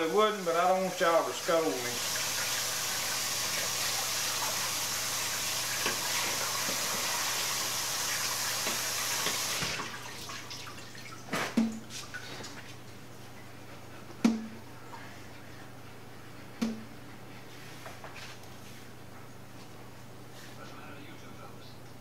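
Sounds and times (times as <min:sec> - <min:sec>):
kitchen faucet running: 0:00.0 - 0:12.3.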